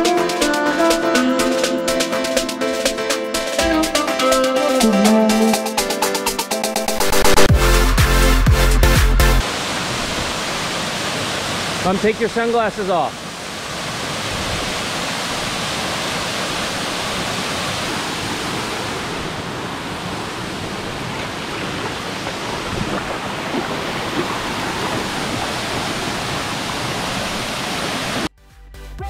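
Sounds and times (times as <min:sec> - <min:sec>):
waterfall rushing: 0:09.4 - 0:28.3.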